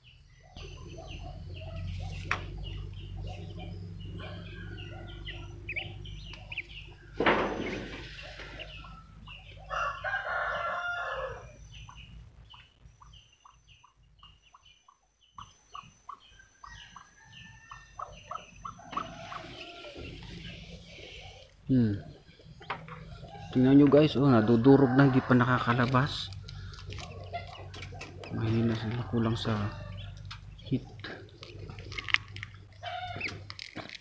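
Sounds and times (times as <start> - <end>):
ducklings peeping: 0.0 - 33.7
chickens clucking: 0.0 - 34.0
rooster crowing: 3.3 - 6.7, 7.6 - 11.7, 16.4 - 21.5, 22.8 - 30.3.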